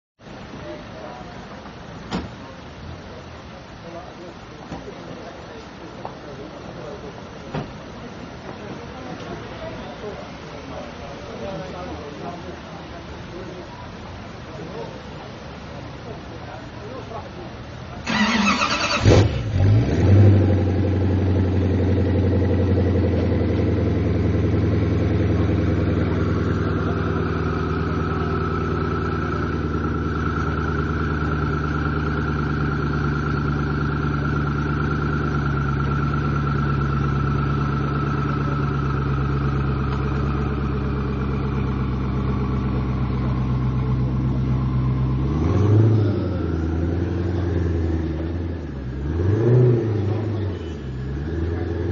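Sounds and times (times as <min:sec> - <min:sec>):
car engine revving and idling: 0:18.0 - 0:51.9.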